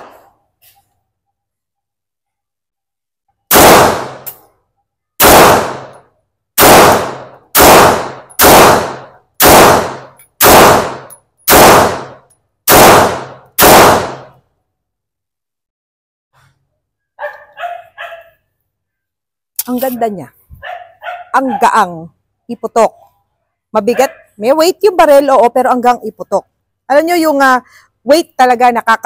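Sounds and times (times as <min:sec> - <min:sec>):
pistol shots with echo: 0:03.5 - 0:04.4, 0:05.2 - 0:06.0, 0:06.6 - 0:14.3.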